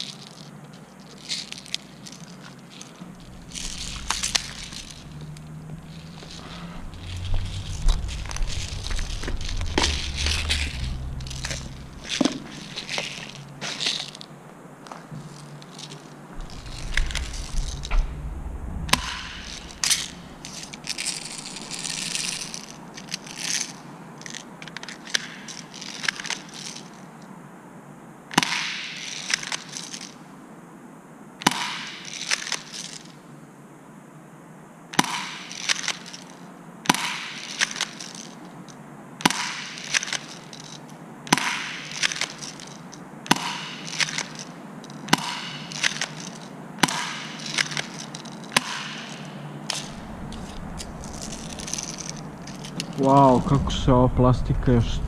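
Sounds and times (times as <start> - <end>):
footsteps crunching over rubble: 0.0 - 24.9, 47.2 - 53.6.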